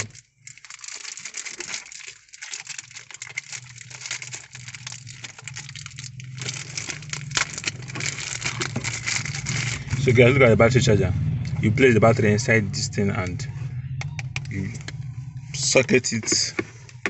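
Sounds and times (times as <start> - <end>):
plastic wrapping crinkling: 0.0 - 10.1
low steady hum: 2.4 - 17.0.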